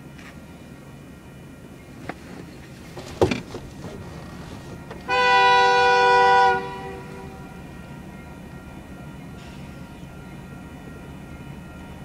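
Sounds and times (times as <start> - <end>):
locomotive horn blast: 4.9 - 8.0.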